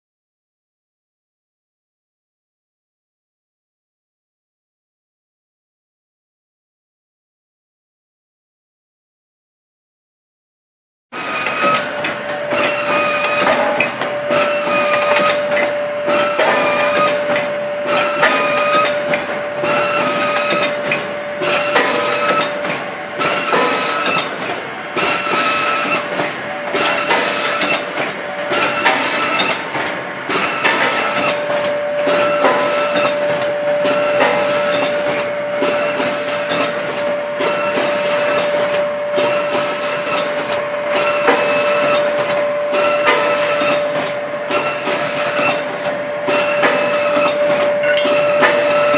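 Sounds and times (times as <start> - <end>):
machine hissing: 11.2 - 48.9
steady machine whine: 11.2 - 48.9.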